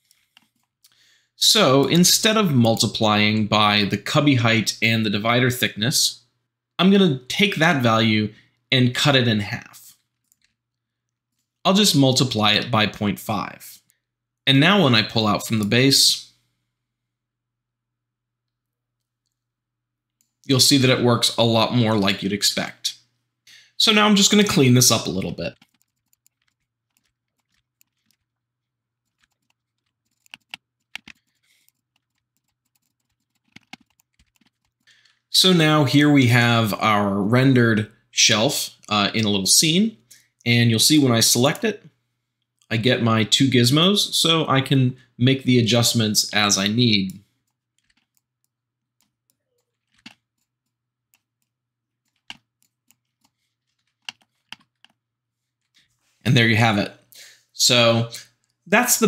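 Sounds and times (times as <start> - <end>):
computer keyboard and mouse clicks: 0.0 - 0.8, 25.5 - 28.3, 29.0 - 34.9, 47.4 - 55.0.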